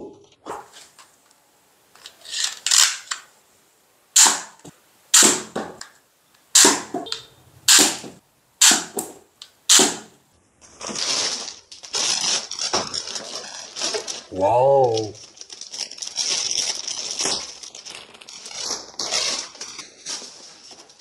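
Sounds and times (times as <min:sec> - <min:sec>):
toy dart rifle firing: 0:04.2 - 0:05.6, 0:06.6 - 0:10.1
plastic bag crinkling: 0:10.6 - 0:21.0.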